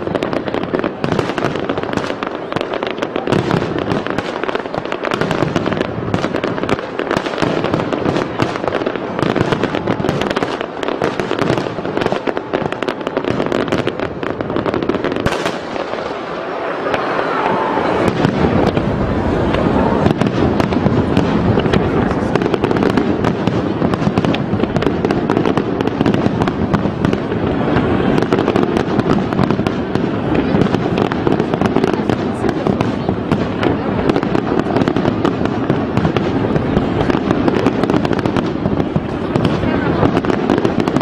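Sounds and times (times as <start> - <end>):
fireworks bursting and crackling: 0.0 - 41.0.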